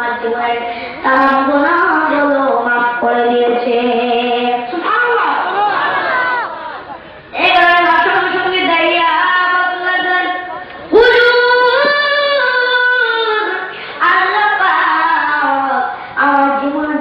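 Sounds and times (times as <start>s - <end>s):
child singing: 7.4s - 17.0s.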